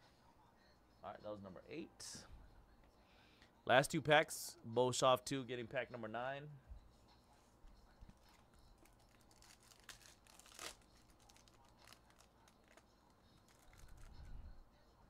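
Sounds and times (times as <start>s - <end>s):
foil wrapper crinkling and tearing: 8.8s - 14.2s.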